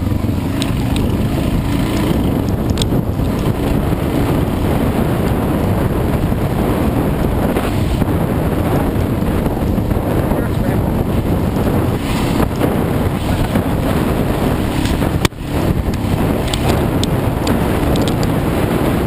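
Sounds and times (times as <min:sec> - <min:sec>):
dirt bike engine running: 0:00.0 - 0:19.0
wind buffeting microphone: 0:00.0 - 0:19.0
sharp clicks: 0:02.6 - 0:03.5, 0:14.8 - 0:18.4.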